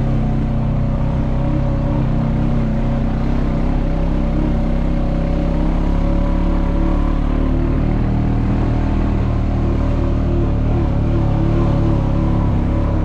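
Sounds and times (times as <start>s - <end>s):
quad bike engine running: 0.0s - 13.0s.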